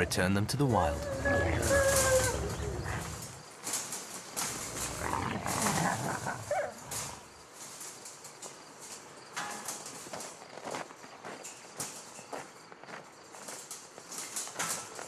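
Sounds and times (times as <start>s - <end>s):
wolf whining and yelping: 1.0s - 3.4s, 5.0s - 7.0s.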